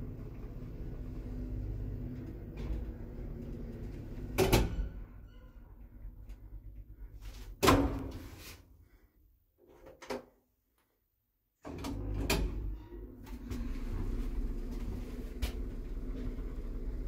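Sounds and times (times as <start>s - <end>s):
lift drive rumbling: 0.0s - 7.2s, 12.5s - 17.0s
lift doors banging shut: 4.2s - 5.2s.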